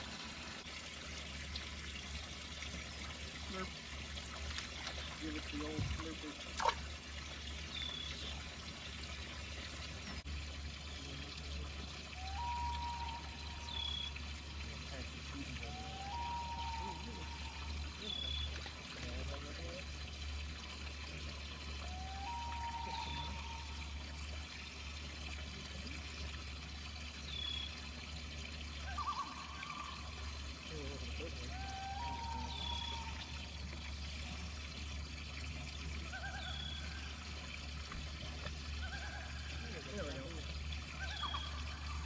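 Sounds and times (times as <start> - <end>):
low steady hum: 0.0 - 42.0
water trickling and pouring: 0.0 - 42.0.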